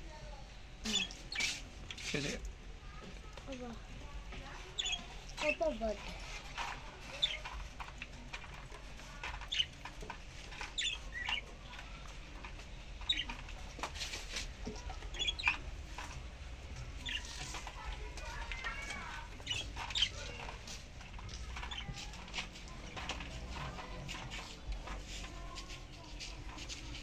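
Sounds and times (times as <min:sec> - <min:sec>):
budgerigar chirping: 0:04.8 - 0:05.1, 0:10.6 - 0:11.4, 0:13.1 - 0:13.4, 0:15.1 - 0:15.6
budgerigar warbling chatter: 0:04.8 - 0:05.1, 0:10.6 - 0:11.5, 0:13.1 - 0:13.4, 0:15.1 - 0:15.6.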